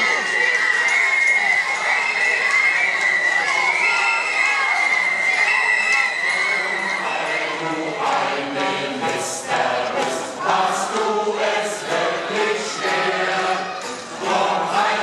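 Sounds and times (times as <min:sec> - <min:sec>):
crowd singing together: 0:03.8 - 0:15.0.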